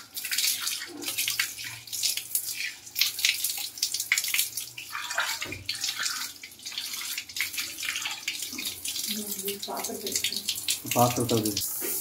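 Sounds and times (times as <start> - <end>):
water splashing on tiles: 0.0 - 12.0.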